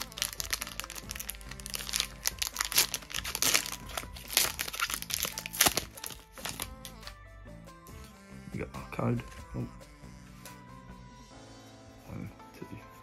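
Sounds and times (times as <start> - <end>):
foil wrapper crinkling: 0.0 - 7.1
background music: 0.0 - 13.0.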